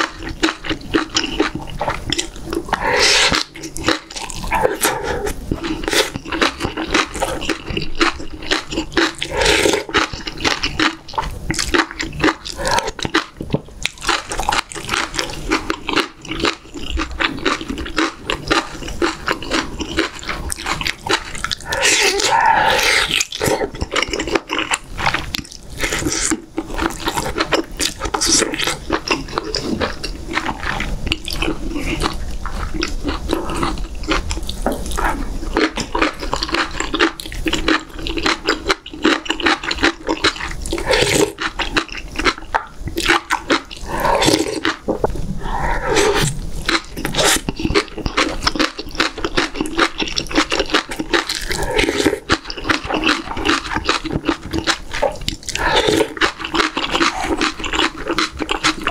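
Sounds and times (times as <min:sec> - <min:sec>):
wet chewing and smacking: 0:00.0 - 0:58.9
slurping broth: 0:01.1 - 0:07.7, 0:08.9 - 0:13.2, 0:18.7 - 0:26.4, 0:40.1 - 0:48.7, 0:49.8 - 0:58.9.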